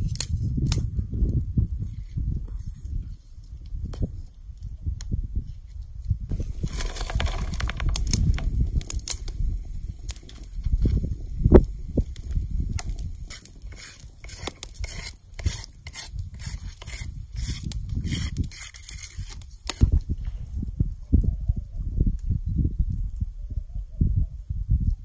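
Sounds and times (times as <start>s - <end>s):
melting butter crackling: 0.0s - 23.7s
spatula scraping on stone: 6.3s - 11.1s, 12.2s - 20.0s.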